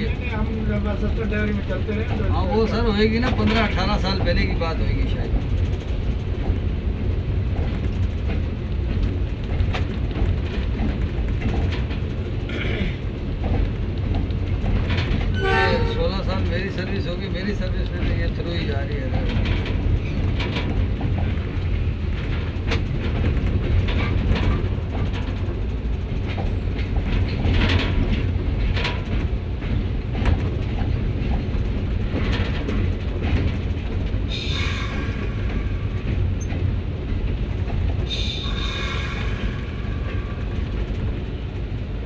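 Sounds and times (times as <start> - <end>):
locomotive engine rumble: 0.0 - 42.0
wheels clacking over rail joints: 0.0 - 42.0
high whining tone: 15.4 - 16.1.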